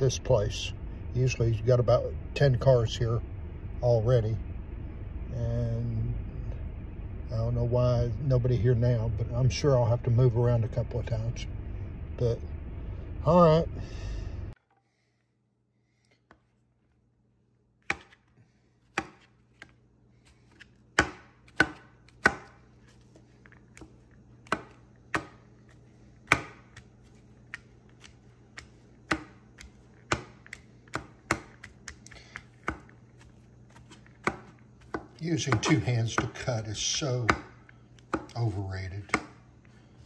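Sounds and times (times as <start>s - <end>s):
low steady hum: 0.0s - 40.0s
knife chopping on cutting board: 17.8s - 39.5s.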